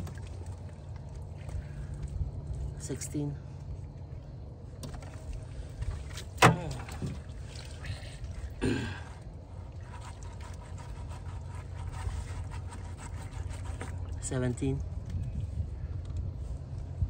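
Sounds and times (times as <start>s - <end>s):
steady low rumble: 0.0s - 17.0s
cast net being emptied in boat: 4.8s - 14.1s.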